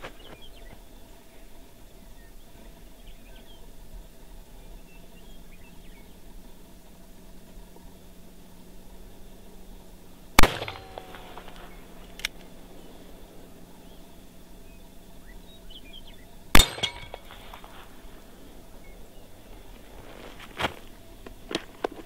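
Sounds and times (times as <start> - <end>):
steel target ringing: 10.4 - 11.8, 16.6 - 18.2
handgun shots: 10.4 - 12.5, 16.6 - 17.7
small click: 11.0 - 12.5.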